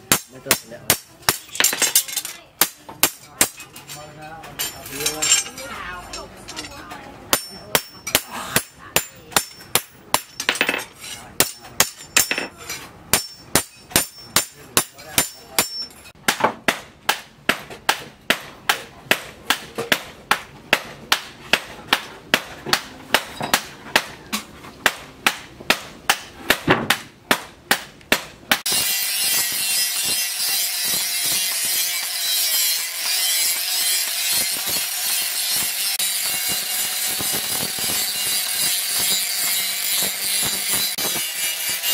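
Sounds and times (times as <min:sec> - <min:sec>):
hammer striking steel: 0:00.0 - 0:04.0, 0:04.6 - 0:41.9
angle grinder grinding metal: 0:28.7 - 0:41.9.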